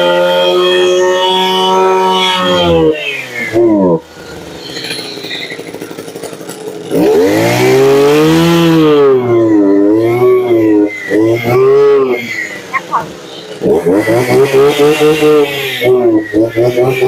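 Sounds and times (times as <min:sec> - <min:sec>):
brush cutter engine revving: 0:06.9 - 0:17.0.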